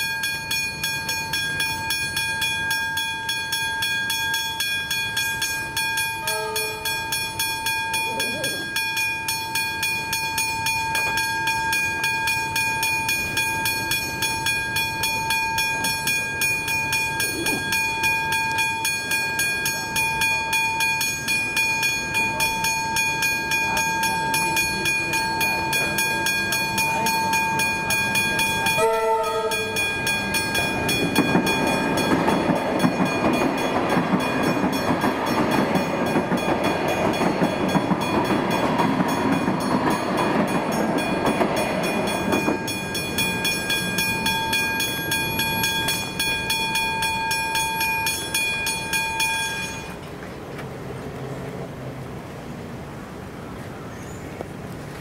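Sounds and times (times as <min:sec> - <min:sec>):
level crossing bells ringing: 0:00.0 - 0:50.0
train rumble: 0:00.0 - 0:55.0
train horn: 0:06.2 - 0:07.0, 0:28.8 - 0:29.8.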